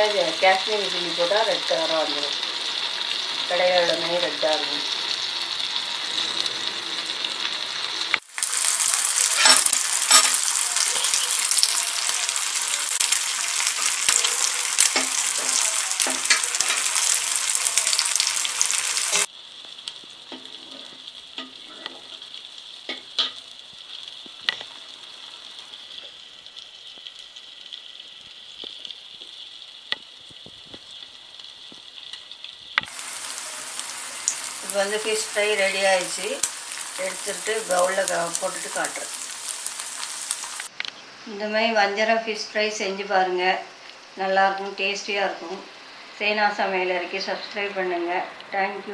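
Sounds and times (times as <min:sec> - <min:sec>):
fish sizzling in oil: 0:00.0 - 0:41.1
oil popping: 0:28.1 - 0:34.6.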